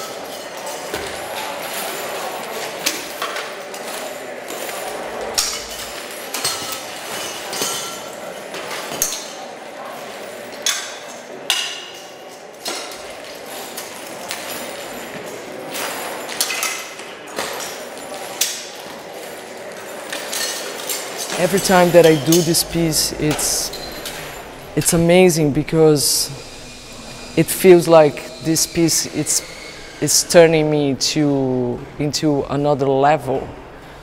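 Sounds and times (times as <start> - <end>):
sharp metallic clanks: 20.1 - 30.8
rattle of metal on metal: 20.3 - 30.4.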